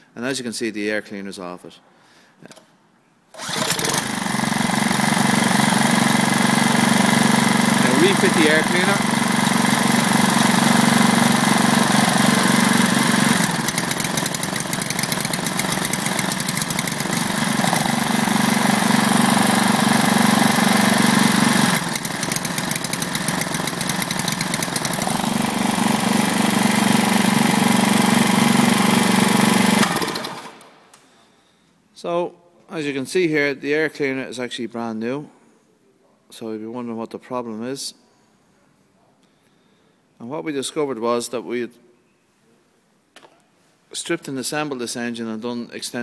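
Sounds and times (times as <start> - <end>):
small engine running: 3.4 - 30.6.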